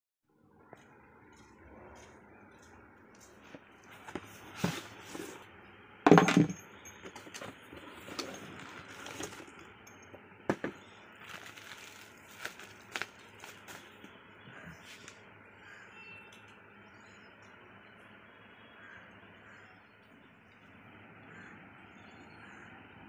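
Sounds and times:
plastic wrap rustling: 7.8 - 9.7, 10.8 - 14.1.

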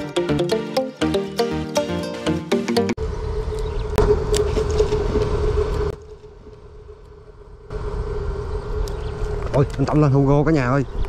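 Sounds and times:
small engine running: 3.0 - 9.8.

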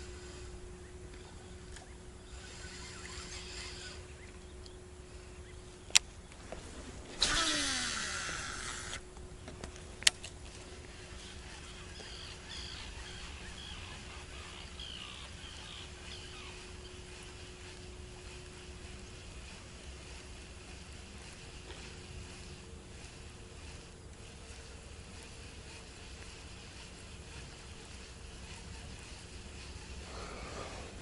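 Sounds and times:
fishing line whirring out: 0.0 - 4.5, 6.5 - 9.1, 10.0 - 31.0
faint bird chirps: 0.0 - 6.4, 10.7 - 31.0
fishing reel click: 2.3 - 4.0, 7.2 - 9.0.

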